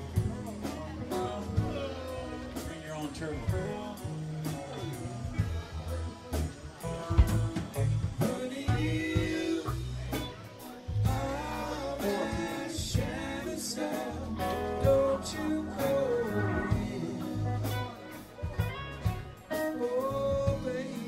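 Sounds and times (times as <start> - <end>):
rock band playing: 0.0 - 21.0
person singing: 6.8 - 21.0.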